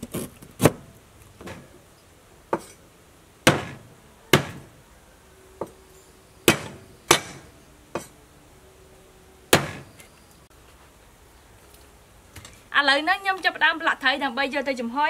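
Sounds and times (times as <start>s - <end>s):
cleaver chopping on wooden board: 3.5s - 4.7s, 6.5s - 8.1s, 9.5s - 9.9s.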